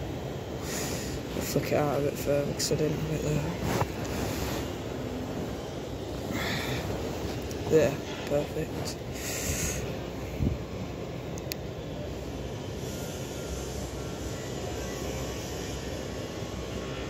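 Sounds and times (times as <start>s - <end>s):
low outdoor rumble: 0.0s - 12.9s.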